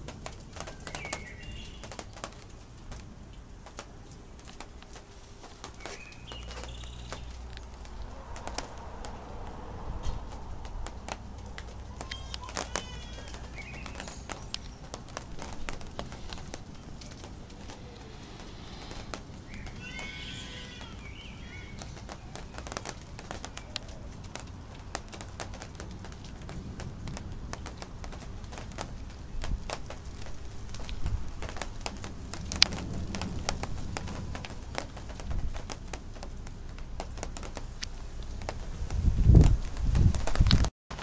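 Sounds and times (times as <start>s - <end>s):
thunder rumble: 0.0s - 40.7s
sharp ticks and crackles: 0.0s - 41.0s
animal call: 11.5s - 14.4s, 17.4s - 22.4s.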